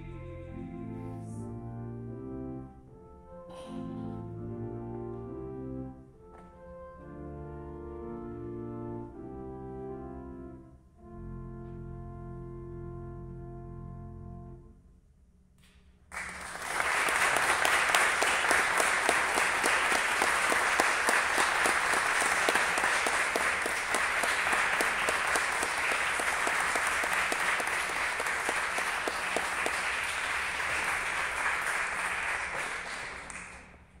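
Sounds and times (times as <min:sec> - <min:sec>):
audience applauding: 0:16.1 - 0:33.9.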